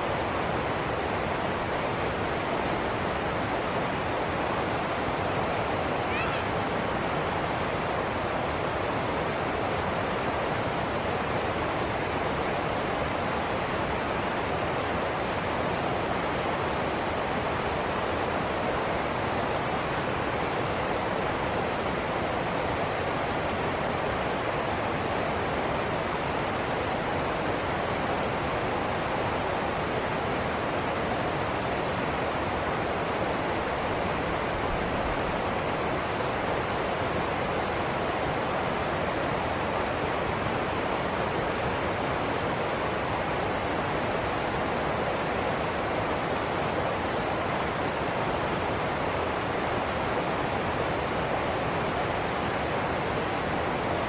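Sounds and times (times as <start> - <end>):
river water rushing over rocks: 0.0 - 54.0.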